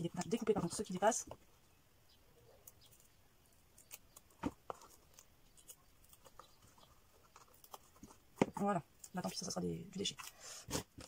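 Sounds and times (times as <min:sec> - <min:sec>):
scissors snipping: 0:03.7 - 0:06.6.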